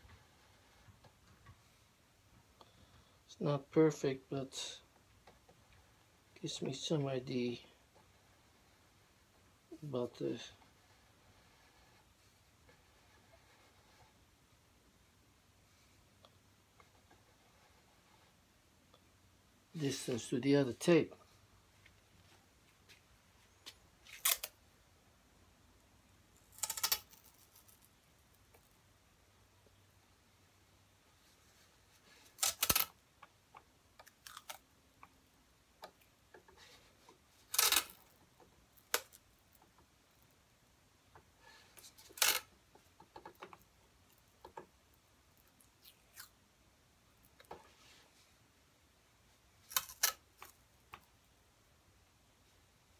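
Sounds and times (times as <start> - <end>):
adhesive tape ripping off roll: 32.4 - 32.9, 37.5 - 38.0.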